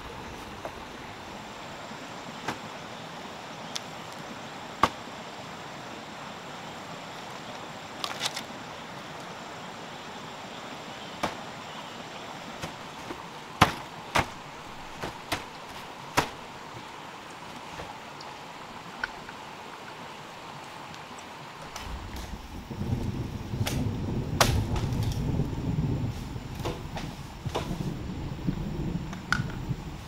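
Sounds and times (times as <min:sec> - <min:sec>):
steady outdoor hiss: 0:00.0 - 0:30.0
bamboo poles knocking together: 0:04.8 - 0:05.0, 0:11.2 - 0:11.4, 0:12.6 - 0:16.9.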